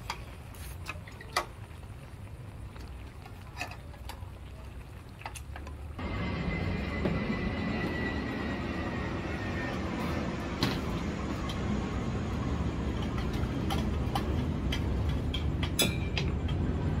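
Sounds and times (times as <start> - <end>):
steady low rumble: 5.8 - 17.0.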